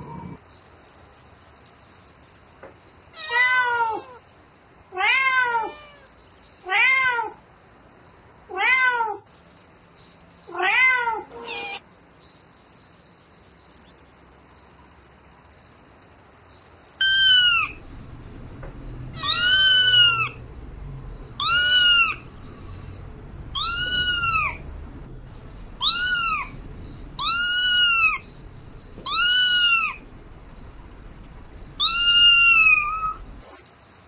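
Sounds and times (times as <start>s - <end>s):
cat meowing: 3.2s - 4.2s, 5.0s - 6.1s, 6.7s - 7.4s, 8.5s - 9.3s, 10.5s - 11.8s, 17.0s - 33.4s.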